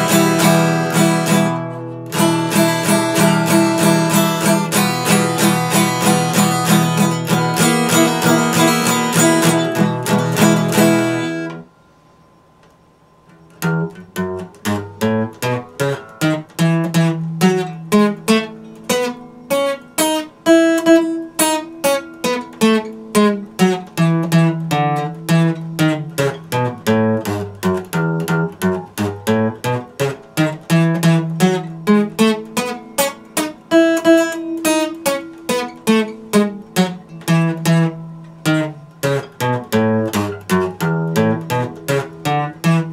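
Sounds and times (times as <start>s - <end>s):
acoustic guitar picked notes: 0.0s - 42.9s
acoustic guitar strumming: 0.0s - 42.9s.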